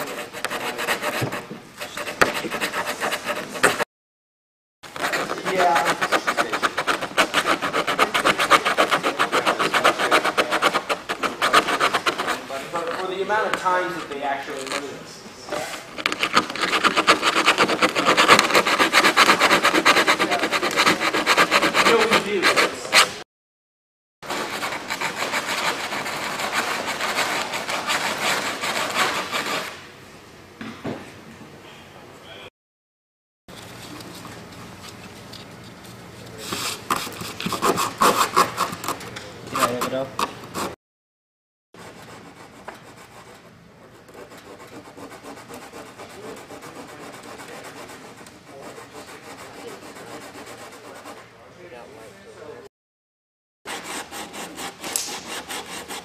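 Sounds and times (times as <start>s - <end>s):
sandpaper rasping: 0.0s - 3.8s, 5.0s - 13.2s, 15.7s - 23.2s, 24.2s - 29.8s, 36.4s - 40.8s, 44.1s - 51.2s, 53.7s - 56.0s.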